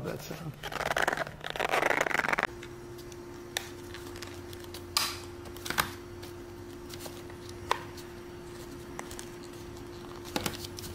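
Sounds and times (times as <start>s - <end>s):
steady low hum: 0.0s - 10.9s
leather case rubbing: 0.6s - 2.5s.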